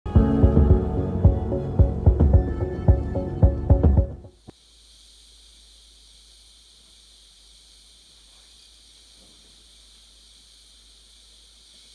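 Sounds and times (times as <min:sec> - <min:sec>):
faint steam hiss from small speaker: 0:04.3 - 0:11.9.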